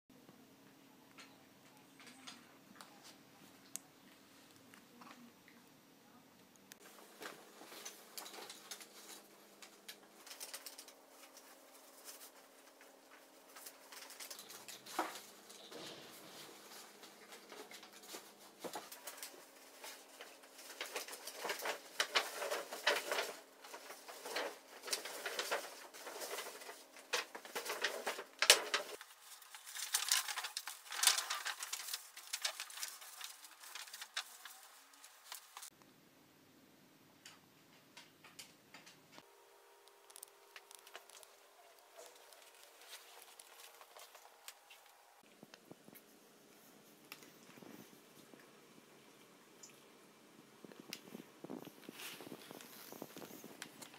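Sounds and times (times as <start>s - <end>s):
paper rustling and crackling: 6.8s - 35.7s, 39.9s - 45.0s, 50.8s - 53.9s.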